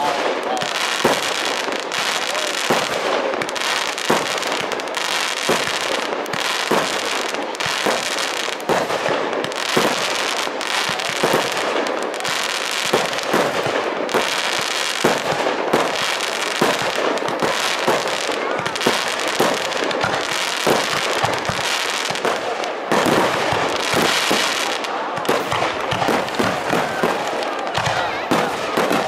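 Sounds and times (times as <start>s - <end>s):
fireworks bangs: 0.0s - 29.0s
fireworks crackling: 0.0s - 29.0s.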